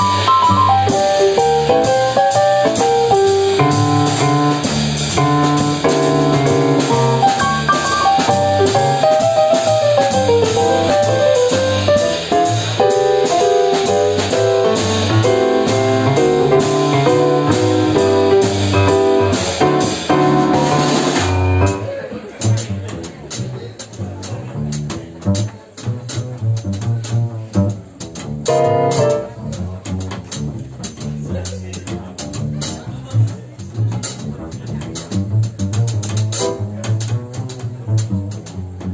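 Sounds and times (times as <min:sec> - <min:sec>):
piano runs and chords: 0:00.0 - 0:21.9, 0:28.4 - 0:29.4
drum kit steady beat: 0:00.0 - 0:38.9
plucked double bass: 0:00.0 - 0:38.9.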